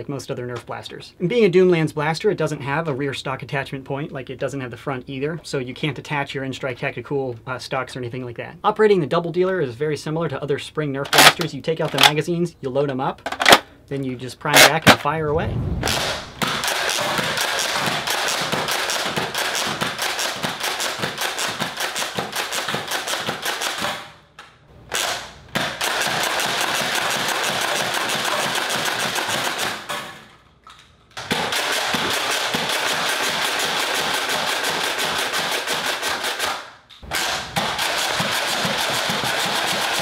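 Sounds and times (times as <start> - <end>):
toy blaster priming and firing: 16.6 - 24.1, 24.9 - 29.9, 31.2 - 40.0.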